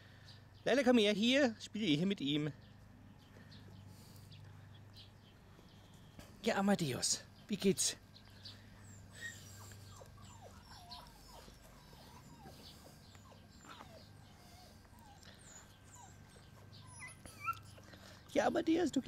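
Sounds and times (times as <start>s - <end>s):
puppy whimpering: 8.8s - 18.3s.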